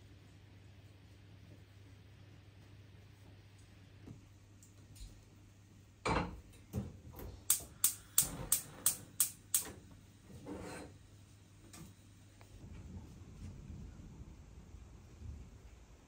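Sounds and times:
gas igniter clicking: 7.4 - 9.8.

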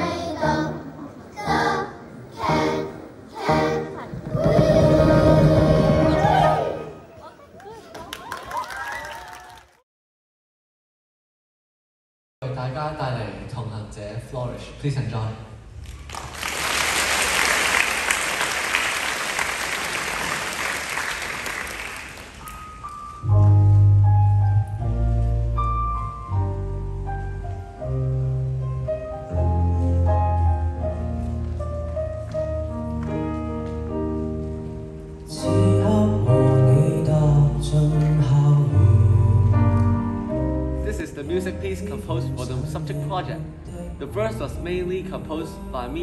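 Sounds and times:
audience applause: 7.6 - 9.8, 15.9 - 22.6
electric bass notes: 23.2 - 31.2.

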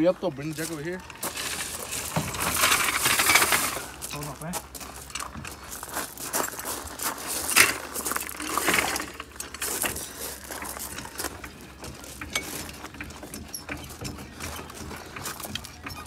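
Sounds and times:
metal jack scraping across gravel: 0.0 - 16.0
metal clicks and clinks: 7.5 - 16.0.

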